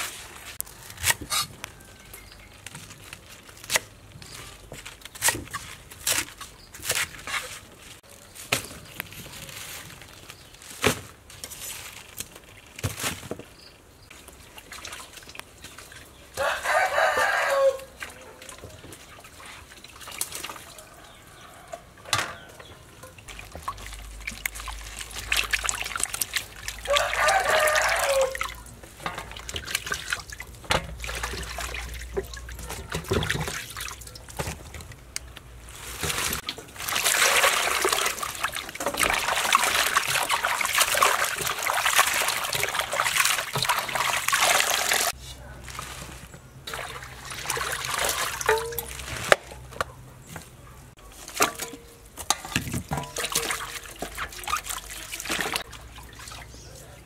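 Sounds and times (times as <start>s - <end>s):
plastic baskets clattering: 7.1s - 13.6s, 35.6s - 49.8s, 50.4s - 55.6s
rooster crowing: 16.4s - 18.0s, 26.8s - 28.6s
water running: 22.7s - 34.2s, 36.1s - 45.2s.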